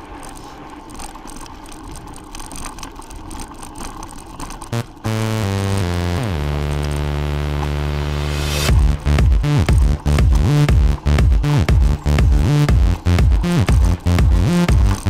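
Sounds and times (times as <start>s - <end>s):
bike rattles and knocks: 0.0s - 7.8s, 8.7s - 15.0s
electronic dance music: 4.7s - 15.0s.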